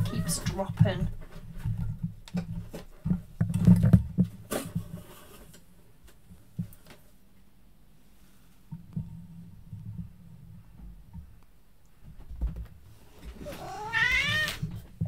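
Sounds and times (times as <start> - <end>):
handling knocks and rustles: 0.1 - 7.2.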